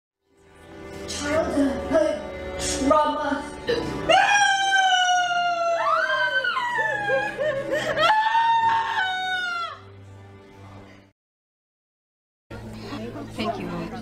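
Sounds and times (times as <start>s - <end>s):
woman screaming high-pitched: 4.1s - 9.8s.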